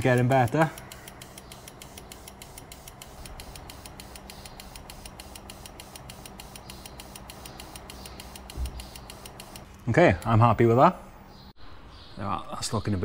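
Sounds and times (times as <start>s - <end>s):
injector spraying in rapid hisses: 0.0s - 9.8s
steady low hum: 0.0s - 12.2s.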